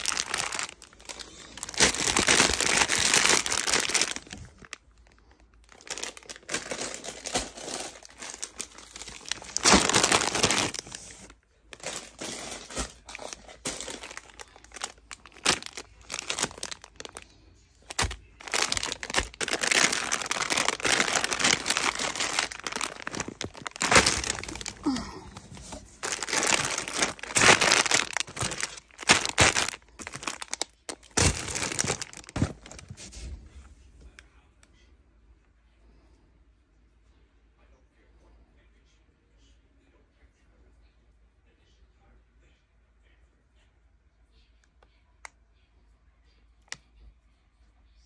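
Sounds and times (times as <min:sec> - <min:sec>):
plastic bags crinkling: 0:00.0 - 0:33.2.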